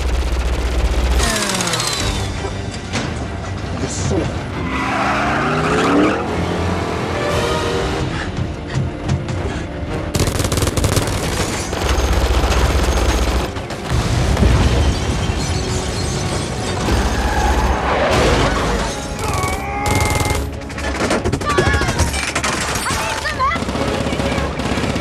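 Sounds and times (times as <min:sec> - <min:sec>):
rapid automatic gunfire: 0:00.0 - 0:02.3, 0:10.1 - 0:14.4, 0:19.2 - 0:20.6, 0:21.3 - 0:25.0
action film music score: 0:00.0 - 0:25.0.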